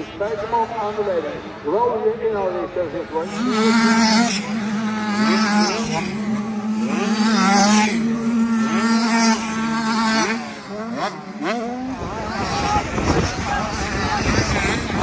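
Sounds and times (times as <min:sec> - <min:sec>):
motocross bike engines revving: 0:03.0 - 0:15.0.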